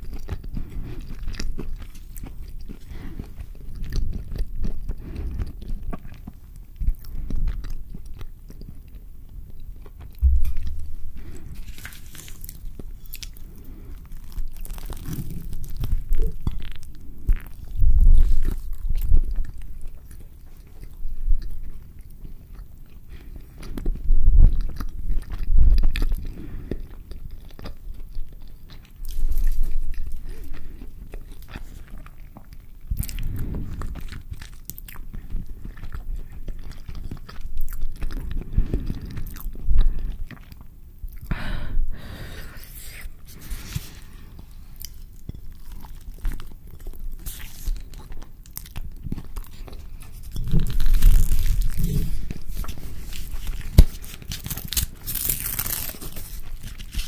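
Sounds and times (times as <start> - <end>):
close chewing: 0.0 - 41.4, 42.6 - 57.0
paper crinkling: 11.2 - 16.4, 49.5 - 57.0.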